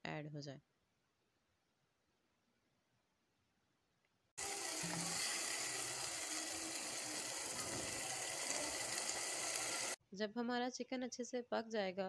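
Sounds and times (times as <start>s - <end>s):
chicken sizzling in a pan: 4.4s - 10.0s.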